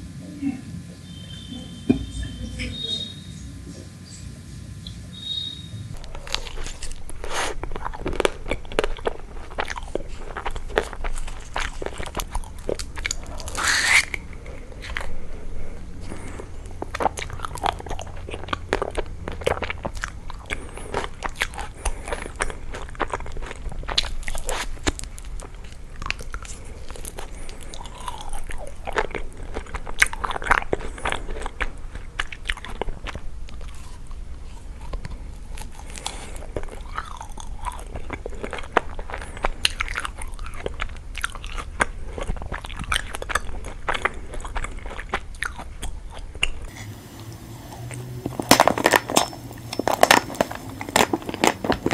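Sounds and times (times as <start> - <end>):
steady low hum: 0.0 - 51.9
chewing: 5.9 - 51.9
crackly bites of ice cream bar: 49.8 - 51.9.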